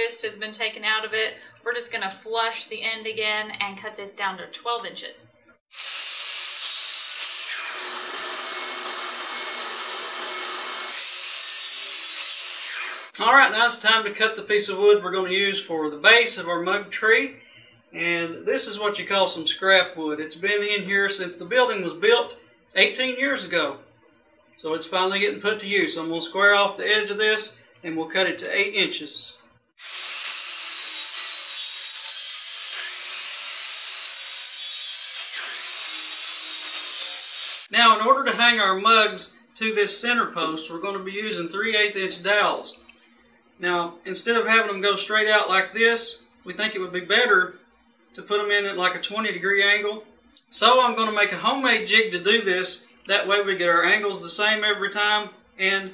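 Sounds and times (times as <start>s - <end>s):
miter saw cutting wood: 5.7s - 13.2s, 29.8s - 37.7s
vacuum hose whirring: 5.7s - 13.2s, 29.8s - 37.7s.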